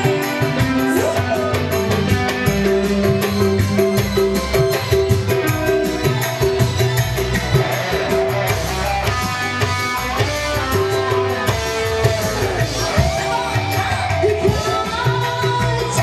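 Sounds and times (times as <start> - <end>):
live band through loudspeakers: 0.0 - 16.0
steady drum beat: 0.0 - 16.0
women singing: 12.4 - 16.0.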